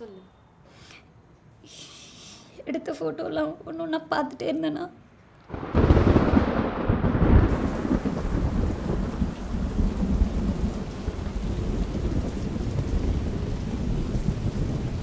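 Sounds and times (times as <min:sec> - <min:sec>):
heavy rain: 0:05.5 - 0:15.0
thunder rumbling: 0:05.5 - 0:15.0.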